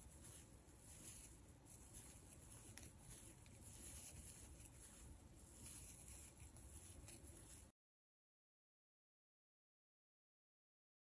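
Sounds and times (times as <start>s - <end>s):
crochet hook rustling yarn: 0.0s - 7.8s.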